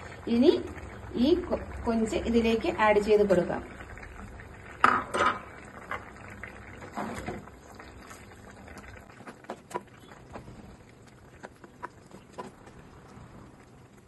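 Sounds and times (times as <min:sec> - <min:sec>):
spatula stirring in clay pot: 0:06.8 - 0:13.1.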